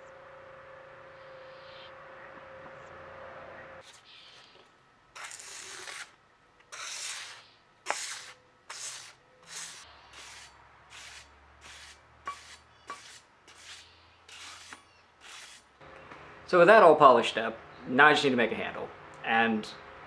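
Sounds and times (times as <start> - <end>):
abrasive paper rasping on metal: 6.7 - 15.7.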